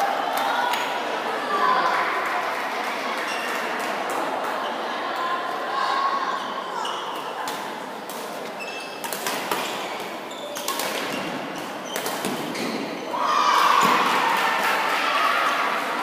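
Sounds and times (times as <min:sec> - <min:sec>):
racket hitting shuttlecock: 0:09.0 - 0:12.9
spectators shouting: 0:13.1 - 0:16.0.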